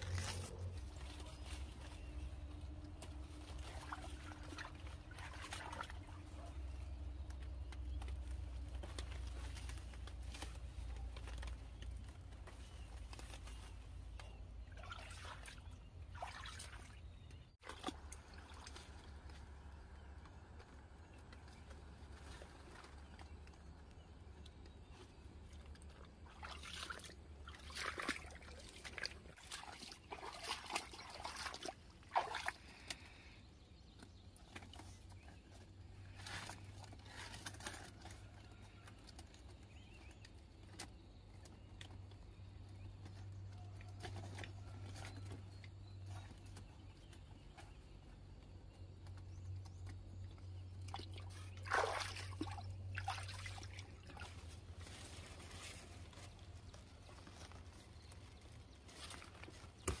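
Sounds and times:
leaves rustling: 0.0 - 6.4, 53.0 - 60.0.

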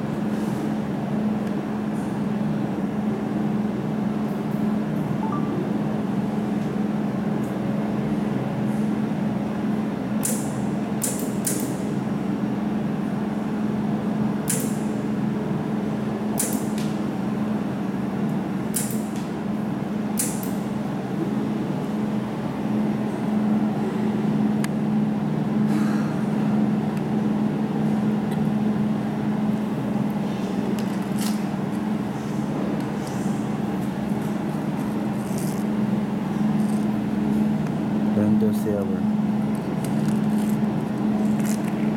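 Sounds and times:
laser welding machine humming: 26.7 - 41.9.

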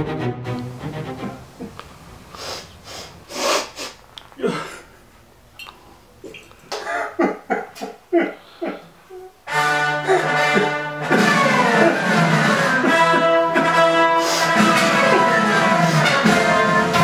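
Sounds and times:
man breathing heavily: 1.5 - 5.0, 8.1 - 9.1, 10.0 - 10.8, 14.2 - 16.0.

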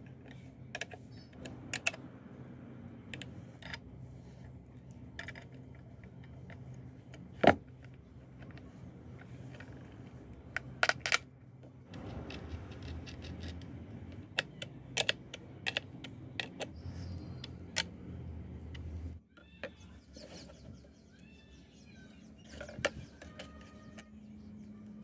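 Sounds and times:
metal clicks and clinks: 11.9 - 18.0
spanner tightening nut: 11.9 - 18.0.

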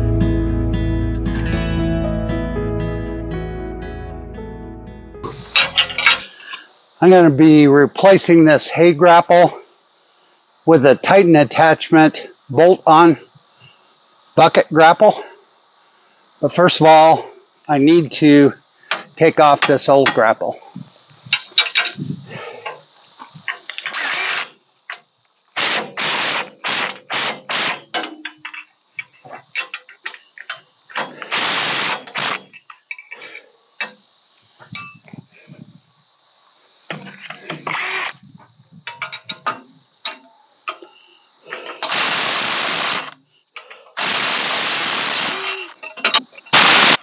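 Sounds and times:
insect chirring: 5.2 - 47.0
cordless power tool whirring: 23.9 - 24.5, 37.6 - 38.2, 44.0 - 45.7.

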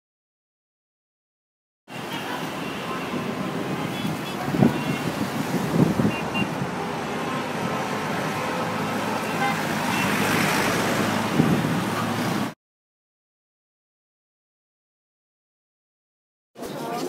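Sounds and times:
car engines and road noise: 1.9 - 12.6
car horn toots: 6.0 - 6.6, 9.2 - 10.2.

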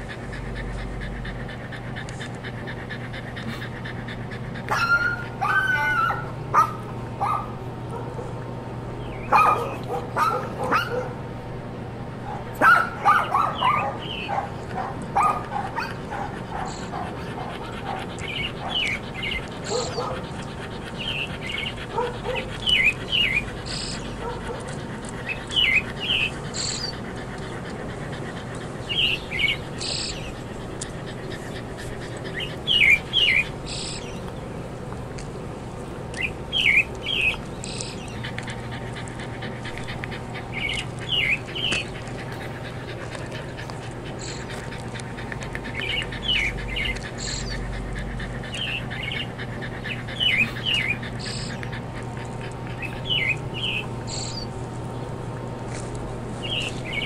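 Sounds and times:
dog yipping and whining: 4.6 - 7.5, 12.6 - 30.4
songbird chirping: 48.4 - 55.1, 55.7 - 57.0.

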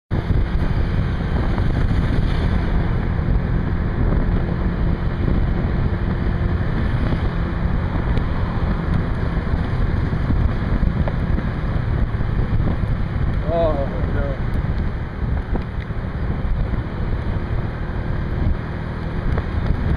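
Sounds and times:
wind buffeting microphone: 0.1 - 19.9.

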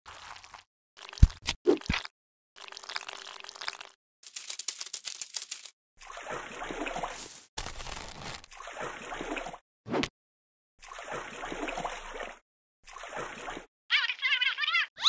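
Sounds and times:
watery sloshing trickle: 6.0 - 7.2, 8.4 - 9.6, 10.8 - 13.7.

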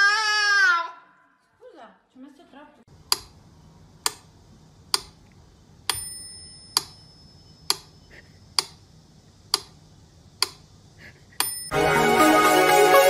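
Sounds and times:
sharp metallic ticks: 3.0 - 3.4, 4.9 - 8.0, 10.4 - 10.7, 11.4 - 11.7
high bell-like ring: 5.9 - 7.6, 11.4 - 11.8.

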